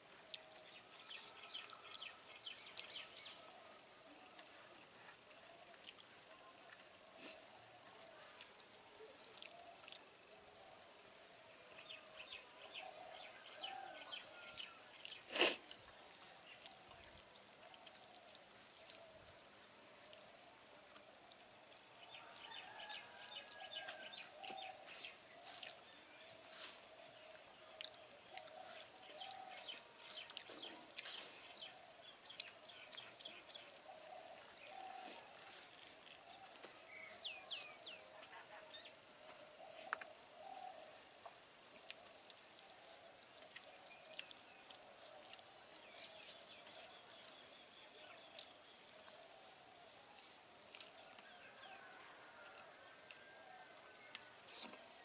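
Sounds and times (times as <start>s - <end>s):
birds chirping faintly: 0.0s - 55.0s
mouth chewing sounds: 0.2s - 3.3s, 5.7s - 7.4s, 8.0s - 10.1s, 15.0s - 26.7s, 27.6s - 37.8s, 41.7s - 47.5s, 48.2s - 49.4s, 50.1s - 51.4s, 54.0s - 55.0s.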